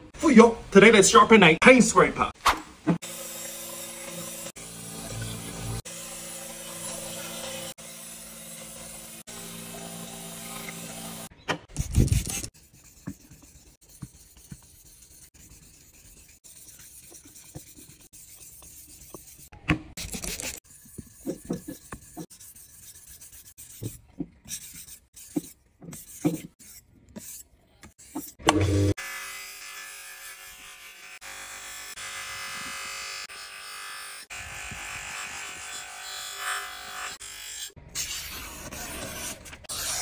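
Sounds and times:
scraper rubbed on whetstones: 11.9 - 27.4.

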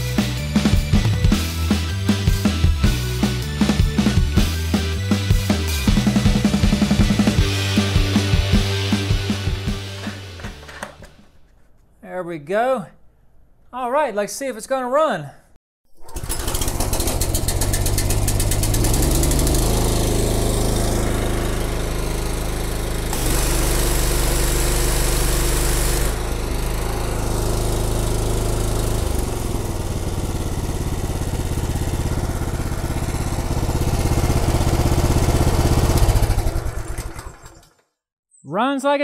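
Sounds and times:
pressure washer engine running: 0.6 - 11.0, 16.0 - 37.6
high-pressure water jet hissing: 23.0 - 28.3.

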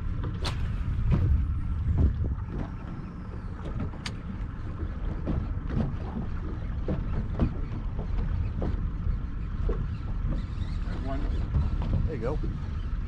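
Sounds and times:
water slaps and knocks: 0.0 - 3.0, 3.6 - 9.0
boat low rumble: 0.0 - 13.0.

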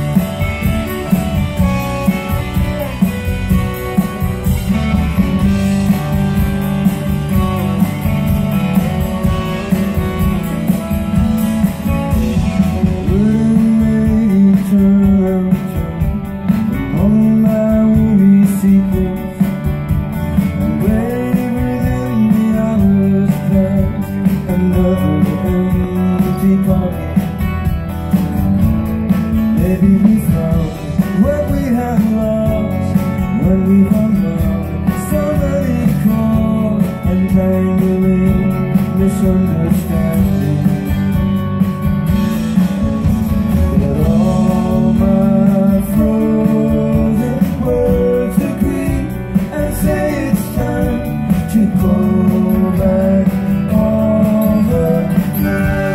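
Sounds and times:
acoustic guitar: 0.0 - 55.9
live rock band playing: 0.0 - 55.9
man singing: 12.2 - 27.7, 29.3 - 41.4, 43.4 - 55.9.

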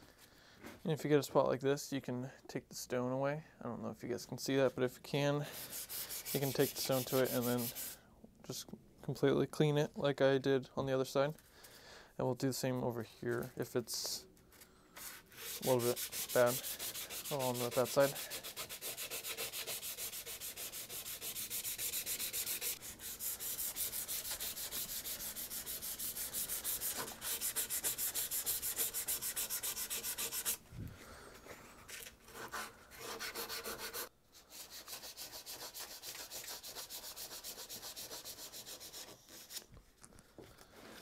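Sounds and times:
sandpaper rubbing on steel: 5.4 - 8.0, 15.0 - 30.6, 32.4 - 39.7.

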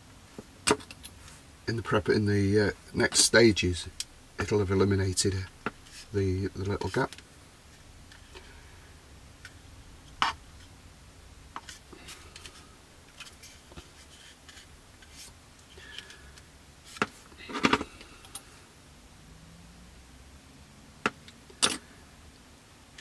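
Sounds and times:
hands handling plastic model: 11.6 - 16.2.

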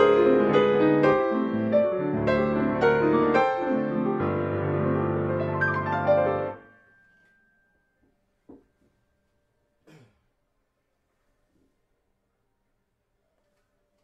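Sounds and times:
grand piano playing: 0.0 - 6.7.

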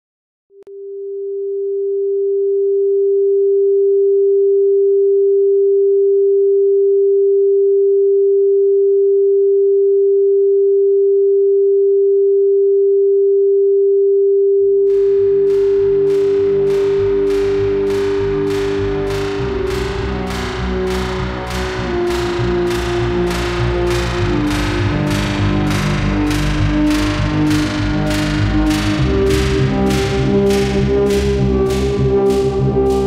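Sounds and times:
electronic sine tone: 0.7 - 33.0
low rumble: 14.8 - 33.0
sharp struck hits: 14.8 - 33.0.

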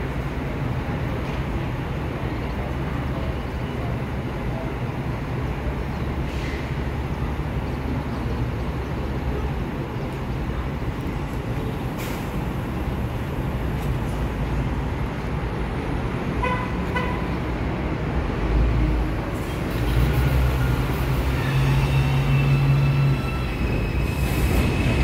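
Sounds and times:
subway train humming: 0.0 - 25.0
brief hisses: 6.3 - 6.7.

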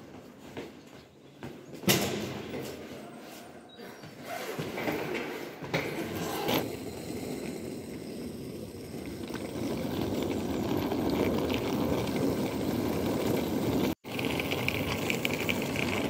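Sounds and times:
suitcase wheels rumbling on asphalt: 6.0 - 16.0.

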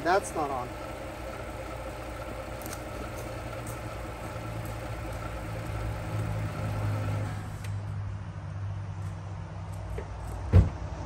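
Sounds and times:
car engine idling: 0.0 - 7.9.

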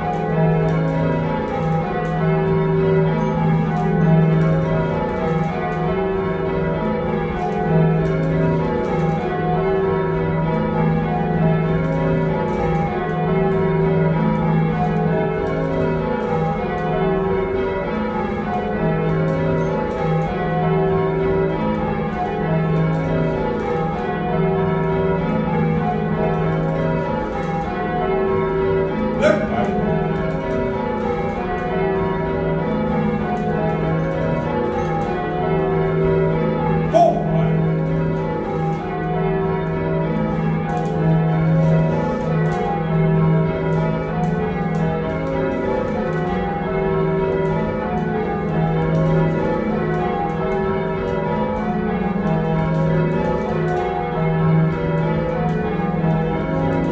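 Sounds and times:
church bells ringing: 0.0 - 56.9.

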